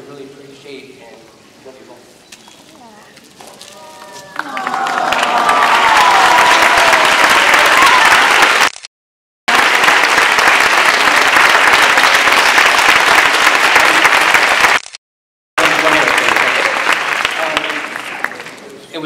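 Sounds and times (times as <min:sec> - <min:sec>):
crowd applauding: 0:03.7 - 0:08.8, 0:09.5 - 0:15.0, 0:15.6 - 0:18.7.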